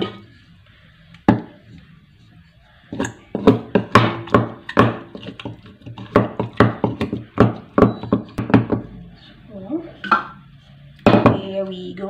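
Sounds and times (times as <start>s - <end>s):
pestle thudding in wooden mortar: 2.9s - 8.8s.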